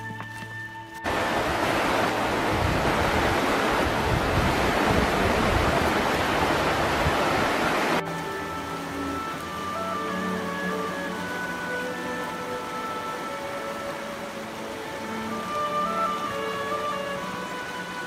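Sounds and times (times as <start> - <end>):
river flowing over stones: 0.0 - 18.0
wind rumble on microphone: 1.1 - 8.0.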